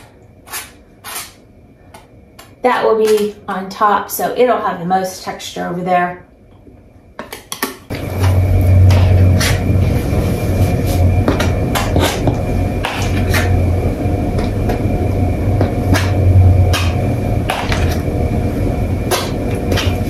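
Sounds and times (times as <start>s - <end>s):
steady low hum: 0.0s - 7.2s, 7.8s - 20.0s
palette knife scraping canvas: 0.5s - 1.4s.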